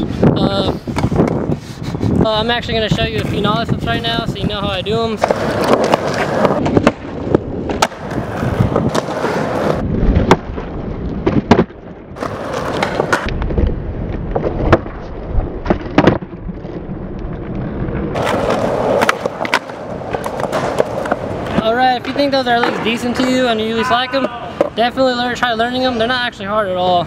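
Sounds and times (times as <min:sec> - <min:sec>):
skateboard rolling on concrete: 0:00.0 - 0:27.0
skateboard tail snaps: 0:05.2 - 0:09.3, 0:18.2 - 0:21.6
skateboard landing clacks: 0:05.2 - 0:16.9, 0:18.1 - 0:23.4.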